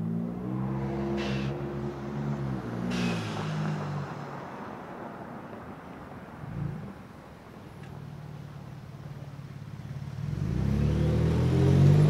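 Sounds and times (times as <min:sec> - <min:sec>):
truck exhaust accelerating: 0:00.0 - 0:05.6
blow-off valve hissing whoosh: 0:02.8 - 0:04.0.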